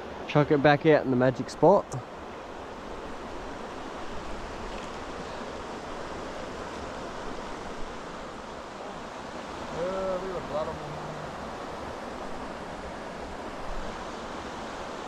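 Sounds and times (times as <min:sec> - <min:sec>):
stream water rushing: 0:00.0 - 0:15.0.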